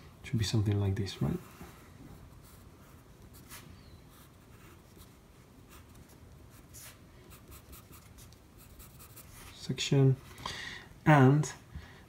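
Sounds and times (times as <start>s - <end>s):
pencil scratching on paper: 1.4s - 9.5s.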